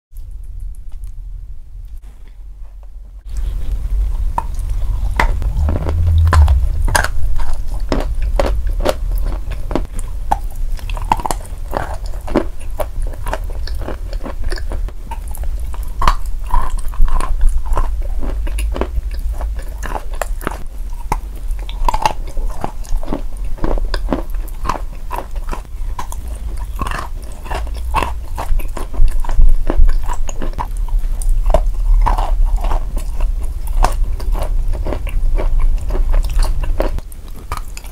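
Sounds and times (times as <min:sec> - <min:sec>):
low steady hum: 0:00.2 - 0:37.9
chalk crunching while chewed: 0:07.8 - 0:37.9.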